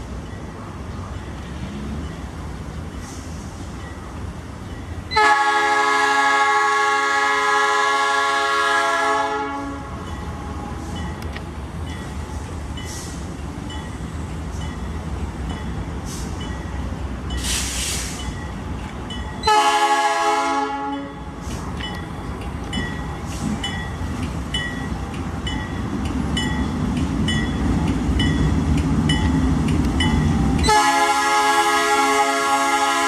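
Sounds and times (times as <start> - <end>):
diesel locomotive rumbling: 0.0 - 33.0
multi-tone air horn blasts: 5.2 - 10.0, 19.5 - 21.2, 30.6 - 33.0.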